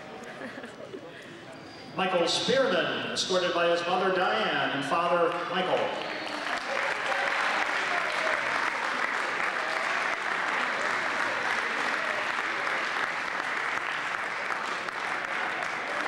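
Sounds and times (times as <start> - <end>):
crowd applauding: 5.3 - 16.0.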